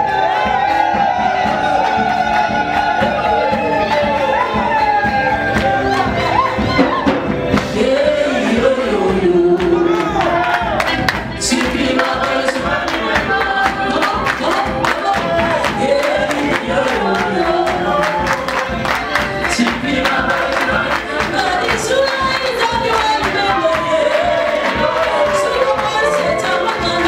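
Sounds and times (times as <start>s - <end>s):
amplified music with beat: 0.0s - 27.0s
voices singing along: 0.0s - 27.0s
woman singing into microphone: 5.7s - 10.2s, 10.9s - 18.3s, 19.2s - 27.0s.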